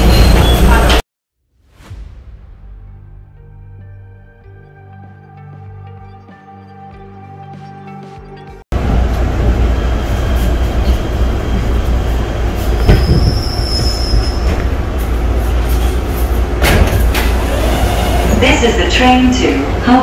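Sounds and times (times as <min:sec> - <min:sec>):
train wheels rumbling on rail: 0:08.8 - 0:20.0
high wheel squeal: 0:12.7 - 0:14.7.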